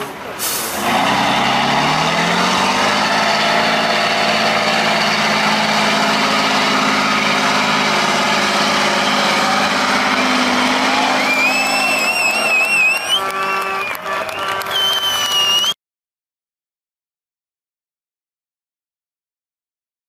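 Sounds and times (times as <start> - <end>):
diesel truck engine revving: 0.0 - 15.8.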